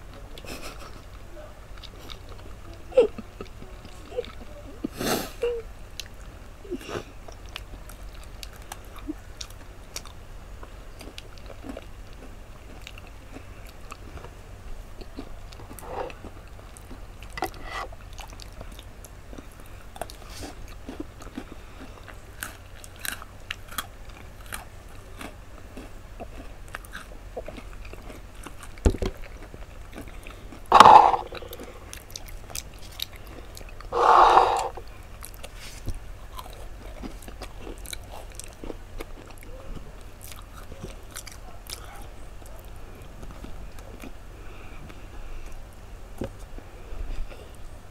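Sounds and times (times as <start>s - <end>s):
chewing and crunching cookies: 0.0s - 47.9s
mouth clicks: 33.8s - 34.8s.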